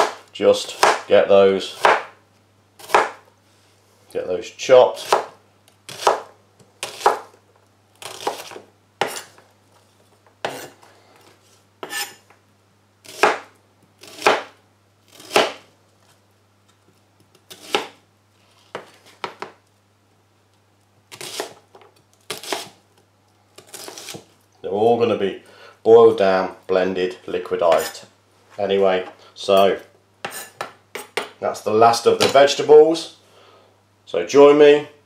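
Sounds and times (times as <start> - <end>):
knife chopping on plastic board: 0.0 - 1.1, 1.8 - 2.2, 2.8 - 3.2, 5.0 - 5.3, 5.9 - 7.3, 8.0 - 9.4, 13.1 - 14.5, 15.2 - 15.6.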